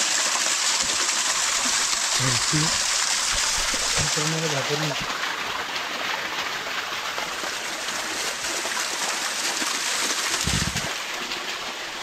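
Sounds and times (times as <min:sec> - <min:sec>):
waterfall rushing: 0:00.8 - 0:05.2, 0:10.0 - 0:12.0.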